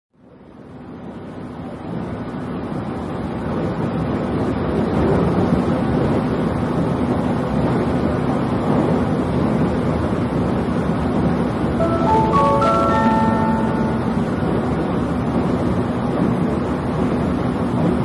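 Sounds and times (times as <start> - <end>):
electric train rumble: 4.8 - 18.0.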